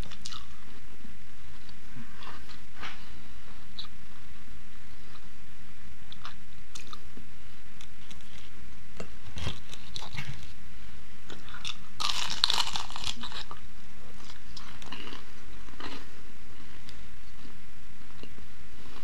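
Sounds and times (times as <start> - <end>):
crunchy bite into crust: 11.4 - 13.6.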